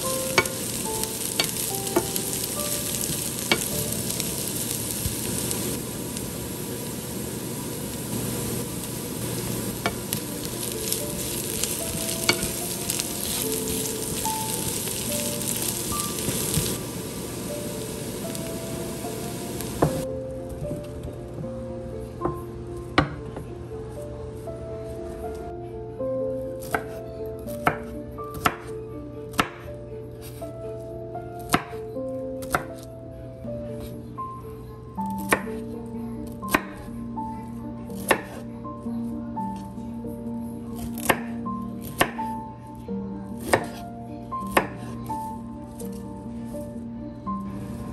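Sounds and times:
vegetables sizzling in a pan: 0:00.0 - 0:20.0
soft background music: 0:00.0 - 0:47.9.

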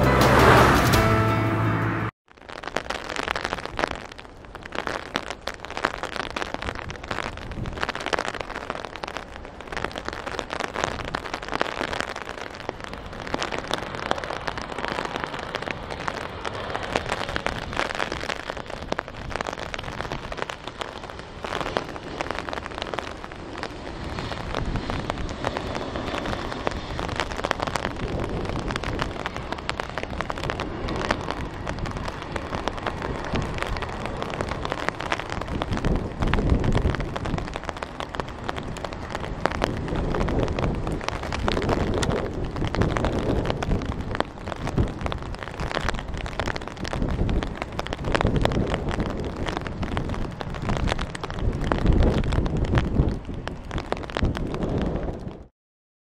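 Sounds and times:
heavy rain falling: 0:00.0 - 0:55.5
jet engines: 0:20.8 - 0:35.2.

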